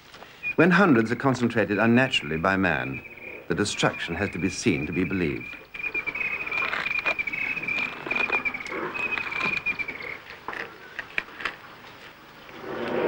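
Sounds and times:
insect trilling: 1.2 - 11.0
bark cracking and snapping: 5.5 - 11.7.

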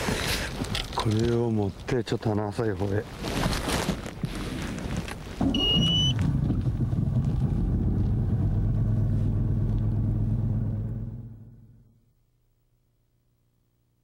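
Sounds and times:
outboard engine running: 5.4 - 11.8
short high beep: 5.5 - 6.2.

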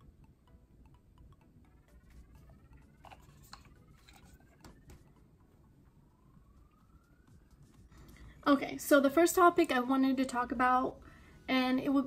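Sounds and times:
faint rising tones: 0.0 - 9.6.

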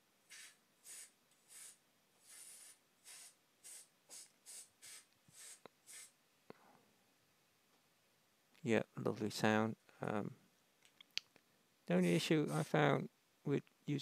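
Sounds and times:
compressed air duster puffs: 0.3 - 6.2.

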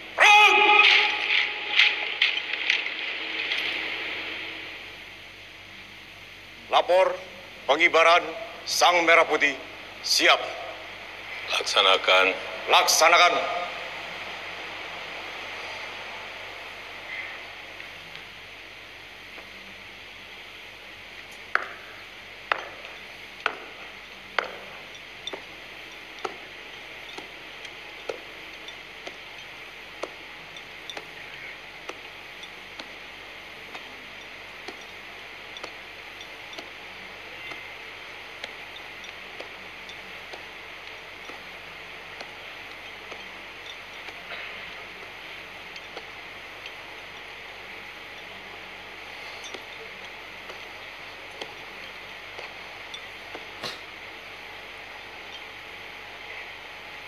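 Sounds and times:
background hiss: 0.0 - 57.0.

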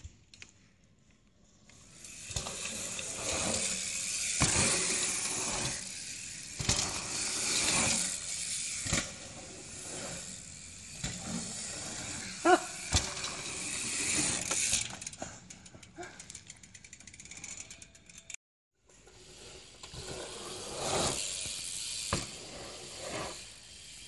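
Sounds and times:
bike rattles and clicks: 1.6 - 18.4.

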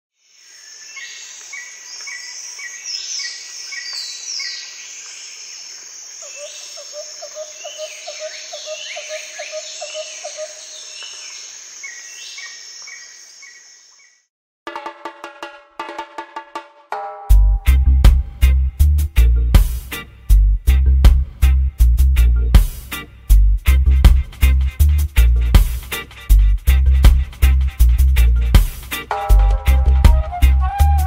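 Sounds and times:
birds chirping: 0.6 - 14.3.

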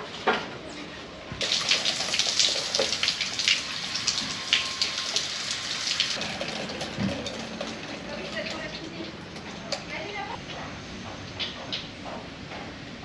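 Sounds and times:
shower water spraying and splashing: 1.4 - 8.7.

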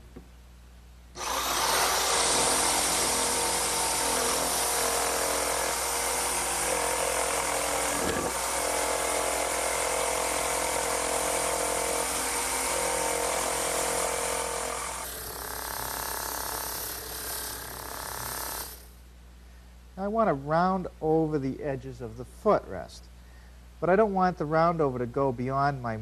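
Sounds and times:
jigsaw cutting wood: 1.2 - 18.9.

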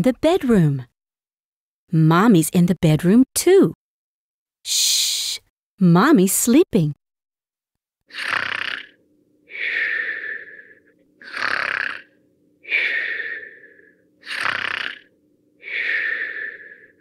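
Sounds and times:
cartoon snoring: 8.1 - 17.0.

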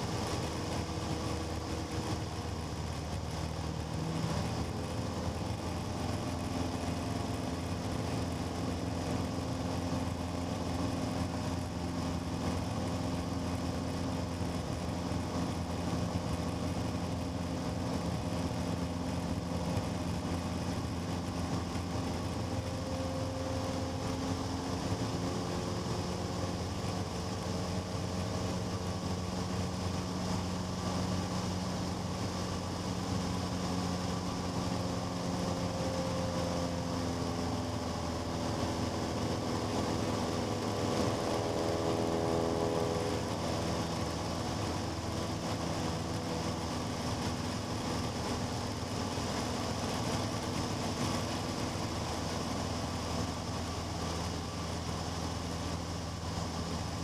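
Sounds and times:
light aircraft engine drone: 0.0 - 57.0.

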